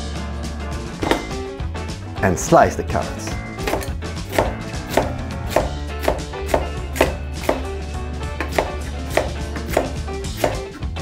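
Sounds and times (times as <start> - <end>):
knife knocking on chopping board: 1.0 - 1.4, 3.6 - 7.7, 8.4 - 10.6
knife slicing carrots: 3.6 - 10.8.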